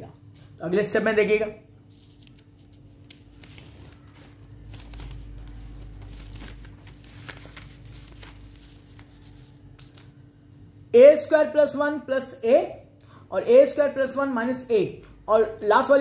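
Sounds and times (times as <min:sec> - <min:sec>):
faint steady hum: 0:00.0 - 0:16.0
paper crinkling and rustling: 0:01.8 - 0:10.3.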